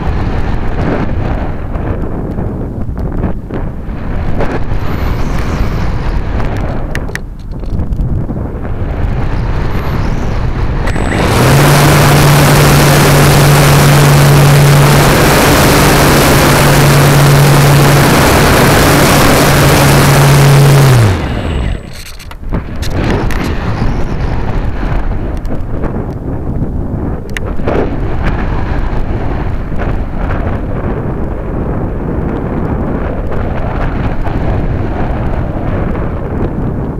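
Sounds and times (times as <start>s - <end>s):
wind noise on microphone: 0.0s - 36.9s
rushing air: 3.2s - 32.2s
electric motor humming: 9.2s - 24.0s.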